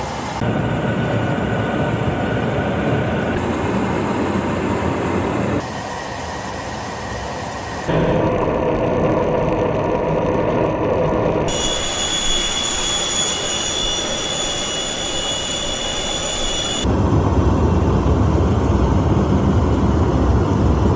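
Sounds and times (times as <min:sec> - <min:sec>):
high-pitched whine: 0:00.0 - 0:20.9
jet engine and airflow noise: 0:00.0 - 0:20.9
deep rumble: 0:07.9 - 0:11.5, 0:16.8 - 0:20.9.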